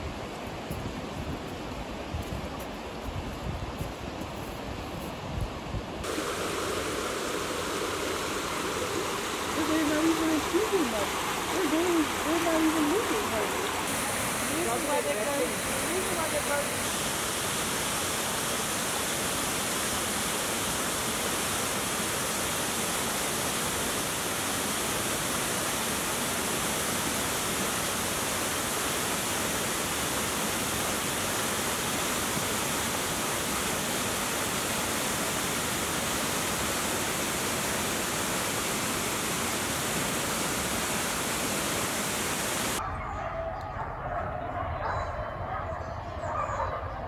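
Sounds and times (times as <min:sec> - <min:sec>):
water rushing over rocks: 0:06.0 - 0:42.8.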